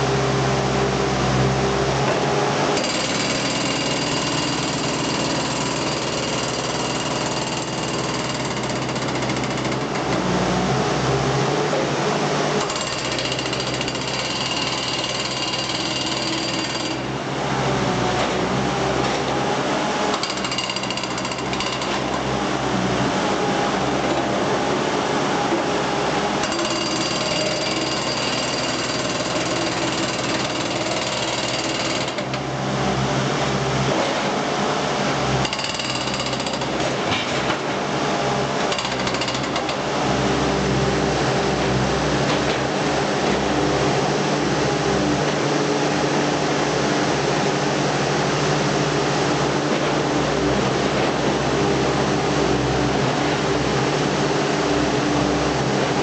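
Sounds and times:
hydraulic breaker hammering brick: 2.8s - 10.2s, 12.6s - 17.1s, 20.1s - 22.2s, 26.4s - 32.5s, 35.4s - 37.6s, 38.6s - 39.8s.

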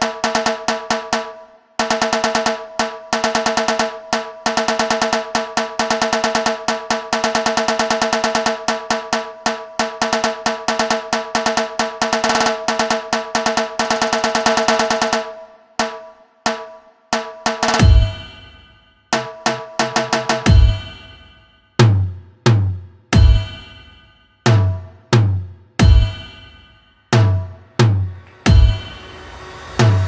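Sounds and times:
fast tasha drum strokes: 0.0s - 16.6s, 17.2s - 22.6s, 23.2s - 30.0s
deep bass hit: 27.2s - 30.0s
steady pitched tones: 28.0s - 30.0s.

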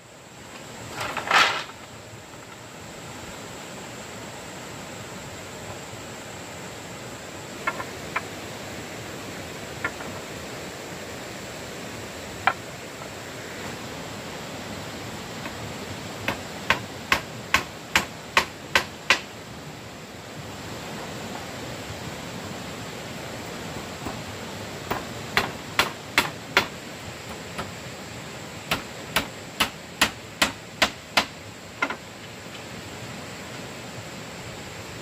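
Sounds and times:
background hiss: 0.0s - 35.0s
hammer striking nails: 16.3s - 19.3s, 24.9s - 26.8s, 28.7s - 32.0s.

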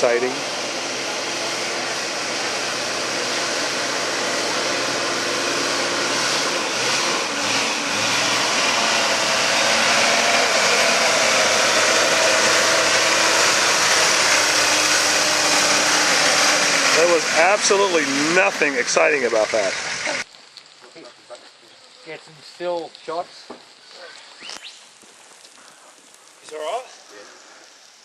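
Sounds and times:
vehicle engine running at low speed: 0.0s - 20.2s.

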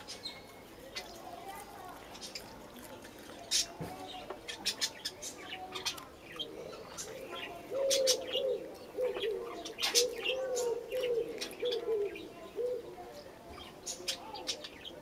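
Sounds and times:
cat chewing grass: 0.0s - 5.2s
dove cooing: 6.4s - 13.1s.

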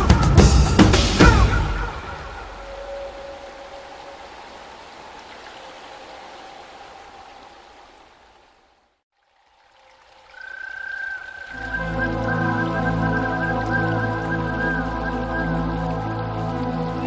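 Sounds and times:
ambient music with held notes: 0.0s - 4.7s, 11.2s - 17.0s.

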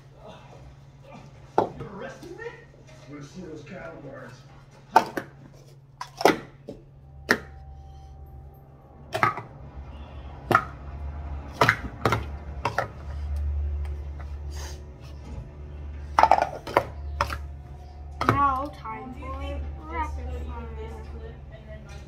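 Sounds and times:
low hum: 2.6s - 22.0s
plastic cups clacking: 4.8s - 7.6s, 9.1s - 9.6s, 10.4s - 10.8s, 11.4s - 14.4s, 16.0s - 18.8s.

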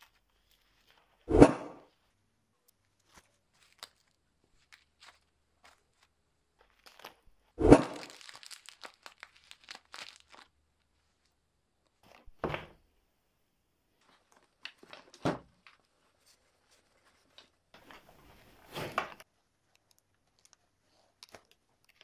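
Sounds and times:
plastic packet crinkling: 2.8s - 11.4s, 14.1s - 16.0s, 21.2s - 22.0s
velcro ripping: 6.8s - 10.5s.

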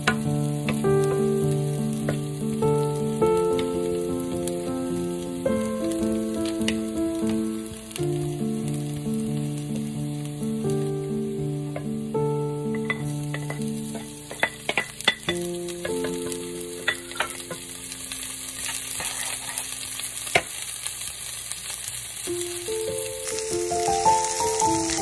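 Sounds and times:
garlic and onion sizzling in pan: 0.0s - 25.0s
wooden spatula scraping pan: 18.6s - 19.7s.

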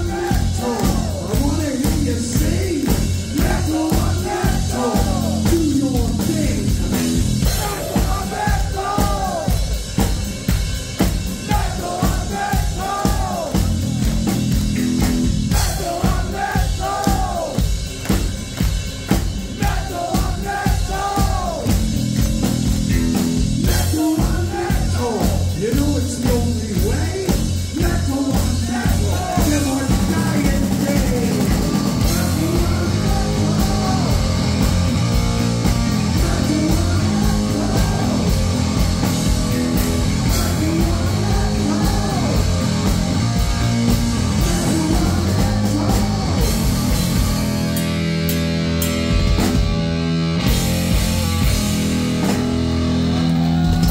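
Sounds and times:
person singing: 0.0s - 9.6s, 15.5s - 17.7s, 23.6s - 34.6s, 36.0s - 38.8s, 40.1s - 43.1s, 44.2s - 47.0s
drum kit beat: 0.0s - 53.9s
heavy metal band playing: 0.0s - 53.9s.

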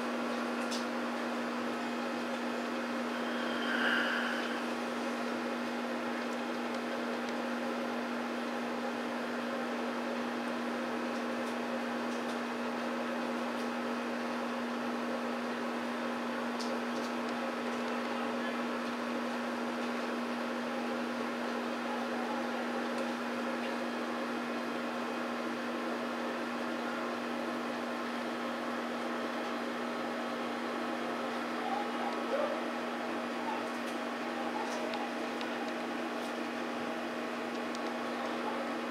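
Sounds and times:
steady hum: 0.0s - 7.6s.

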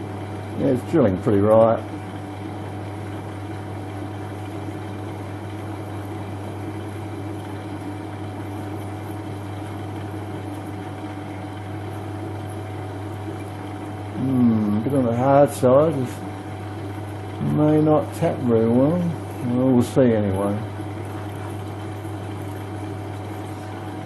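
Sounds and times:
metal lathe humming: 0.0s - 24.0s.

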